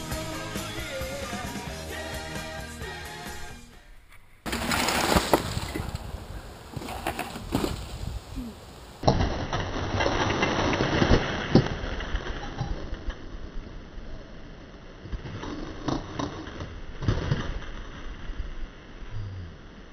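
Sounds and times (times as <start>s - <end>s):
bike crash: 4.2s - 8.2s, 9.0s - 18.6s
bike knocking over wooden planks: 4.4s - 8.1s
bike tyres rustling through dry leaves: 4.5s - 15.0s.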